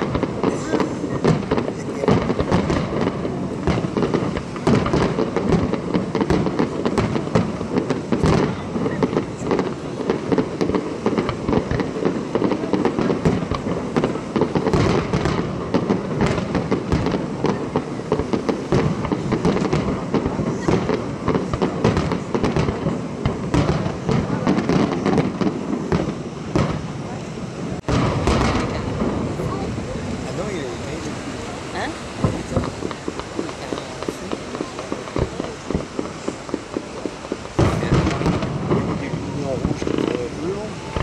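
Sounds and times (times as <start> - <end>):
fireworks bursting and crackling: 0.0 - 41.0.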